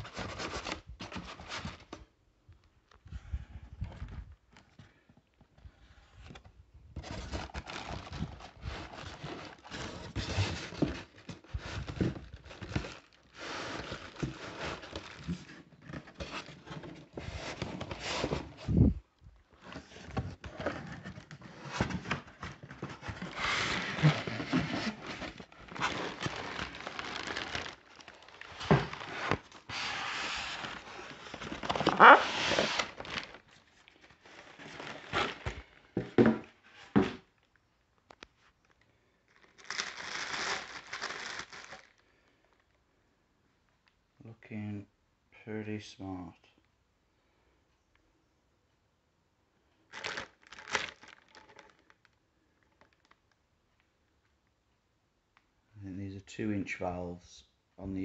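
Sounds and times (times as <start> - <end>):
plastic wrapping crinkling: 7.3 - 16.9, 20.4 - 35.8, 37.4 - 42.8, 49.8 - 53.9
scrapes and knocks on cardboard: 36.0 - 37.2.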